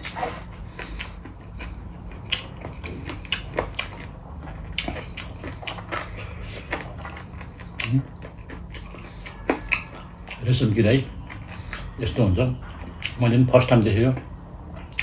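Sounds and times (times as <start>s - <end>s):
crunchy chewing: 0.0s - 12.0s.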